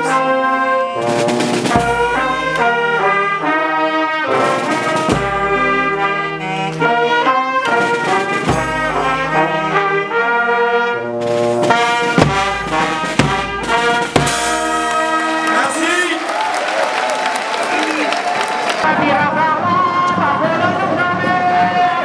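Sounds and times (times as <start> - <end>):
brass horns playing chords: 0.0 - 16.5.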